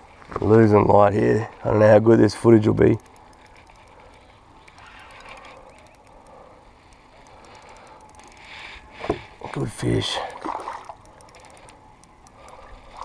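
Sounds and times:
spinning reel ticking: 2.6s - 8.9s, 10.9s - 13.0s.

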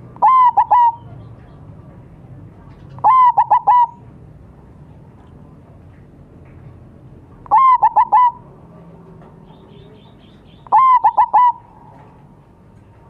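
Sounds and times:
dove cooing: 0.2s - 1.2s, 2.9s - 4.0s, 7.5s - 8.4s, 10.7s - 11.9s.

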